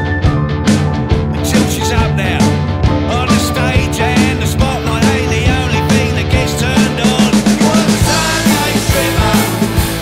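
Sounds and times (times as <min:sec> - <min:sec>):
rock band music: 0:00.0 - 0:10.0
drum beat: 0:00.6 - 0:10.0.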